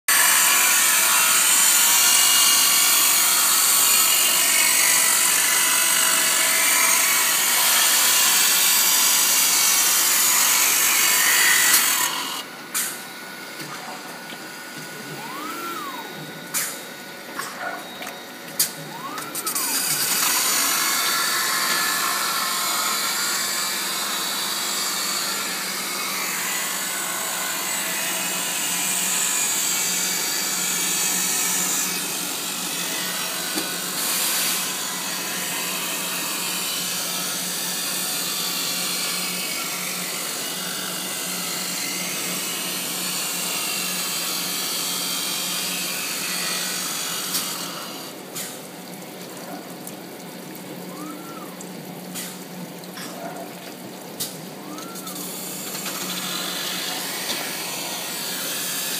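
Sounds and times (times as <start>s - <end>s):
motor hum: 7.9s - 36.4s, 48.9s - 58.5s.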